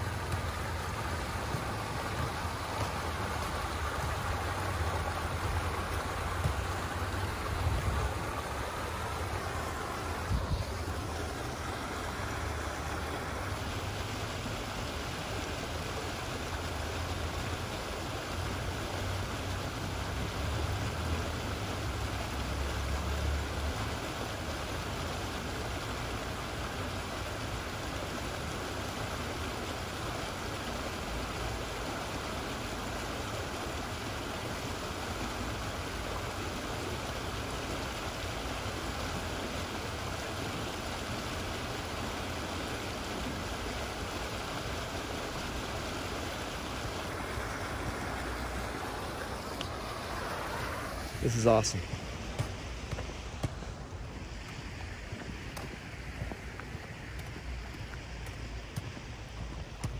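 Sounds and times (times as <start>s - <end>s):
creek water rushing over rocks: 0.0s - 59.9s.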